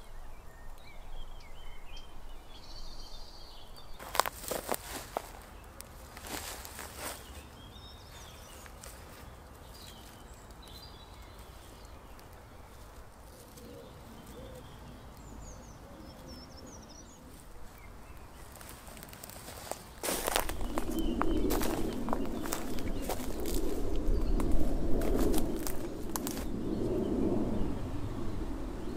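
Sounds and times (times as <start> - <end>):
faint outdoor background: 0.0 - 28.9
small birds chirping: 0.0 - 28.9
leaves rustling: 3.9 - 16.3, 17.1 - 28.9
pigeon cooing: 13.3 - 14.9.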